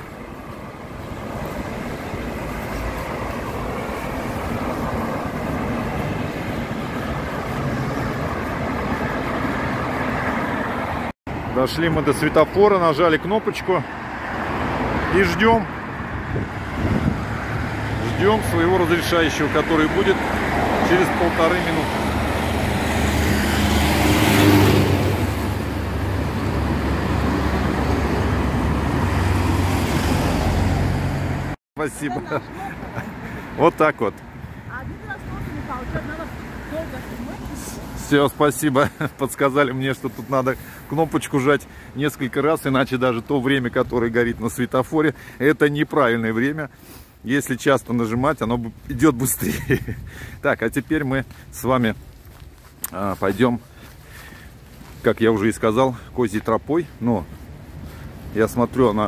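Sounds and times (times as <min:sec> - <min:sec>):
vehicle passing close: 0:00.0 - 0:11.1, 0:13.8 - 0:31.6
highway traffic rumble: 0:00.0 - 0:59.0.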